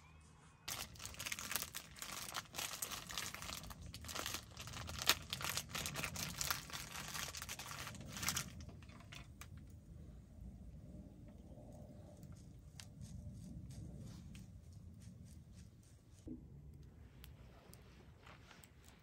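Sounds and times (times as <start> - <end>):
plastic bag crinkling: 0.7 - 9.6.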